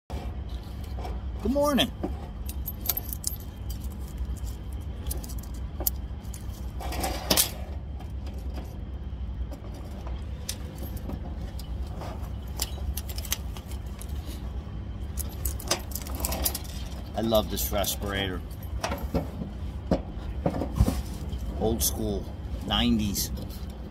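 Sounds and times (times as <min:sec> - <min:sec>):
steady low rumble: 0:00.1 - 0:23.9
respirator mask clicks and rattles: 0:02.4 - 0:08.6, 0:10.1 - 0:14.3.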